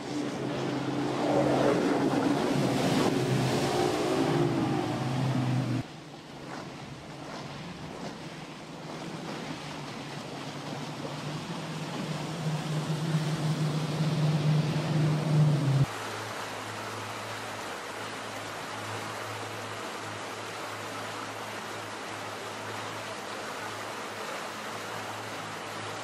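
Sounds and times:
outboard engines droning: 0.0 - 26.0
rushing water: 0.0 - 26.0
wind: 0.0 - 26.0.

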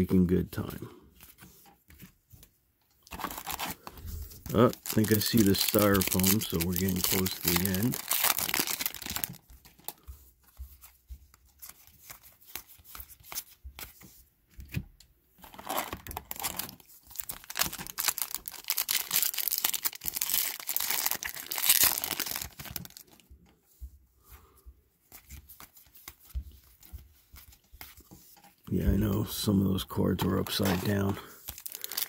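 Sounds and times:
cards being handled: 0.4 - 23.3, 25.0 - 32.0
foil wrapper tearing and crinkling: 3.1 - 9.4, 15.5 - 23.1, 30.4 - 32.0.

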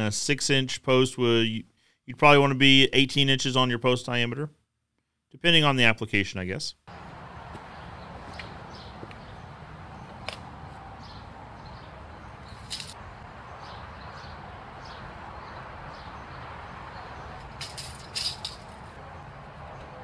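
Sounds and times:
bird chirping: 7.7 - 10.3, 11.0 - 19.9.

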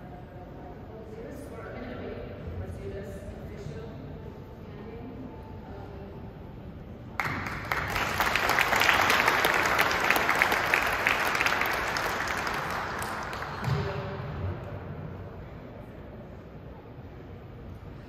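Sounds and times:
audience applauding: 7.2 - 13.8.

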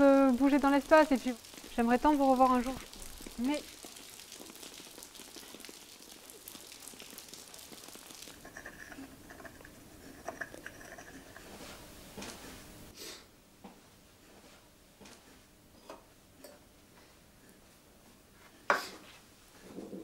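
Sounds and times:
rain pattering on umbrellas: 0.0 - 8.4.

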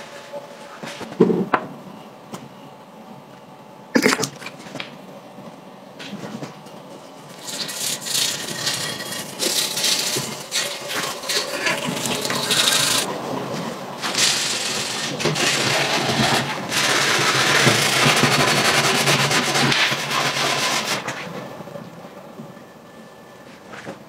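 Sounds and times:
paintbrush scrubbing metal: 7.4 - 13.1
scouring pad scrubbing metal: 7.4 - 13.1.

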